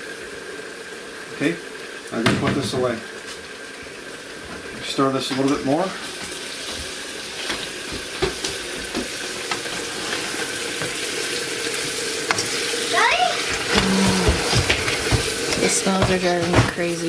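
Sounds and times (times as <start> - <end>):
food sizzling in a frying pan: 0.0 - 17.0
spatula scraping and knocking pan: 7.4 - 11.2, 13.5 - 17.0.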